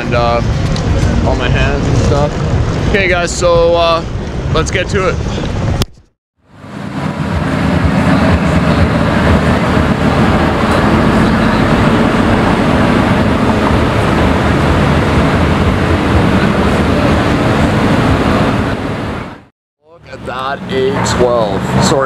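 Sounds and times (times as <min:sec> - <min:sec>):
car engine running at low revs: 0:06.5 - 0:22.0.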